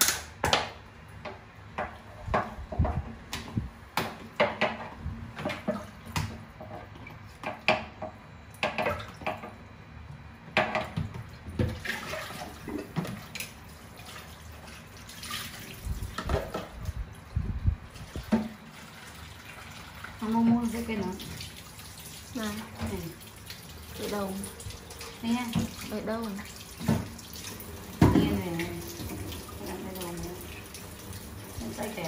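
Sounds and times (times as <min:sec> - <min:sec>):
knocks and clatters in sink: 0:00.0 - 0:09.6, 0:10.5 - 0:13.5, 0:16.1 - 0:16.8, 0:18.1 - 0:18.6, 0:22.4 - 0:23.2, 0:25.2 - 0:27.2, 0:27.9 - 0:30.2.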